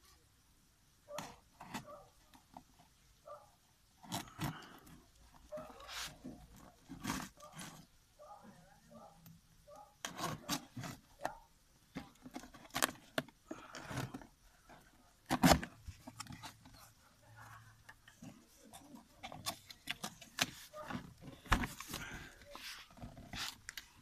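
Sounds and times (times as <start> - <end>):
cardboard flaps scraping and rustling: 5.5 - 7.8, 12.0 - 17.0, 18.0 - 24.0.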